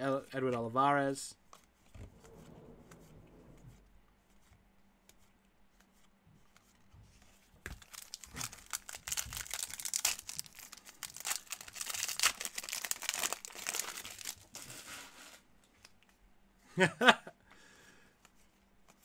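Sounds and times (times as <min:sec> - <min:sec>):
wrapper tearing and crinkling: 0:07.7 - 0:14.7.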